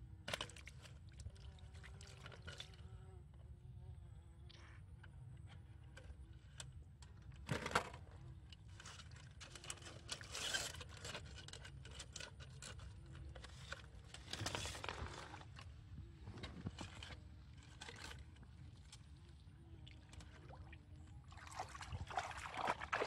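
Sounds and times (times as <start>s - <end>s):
plastic netting rustling and scraping: 8.6s - 19.2s.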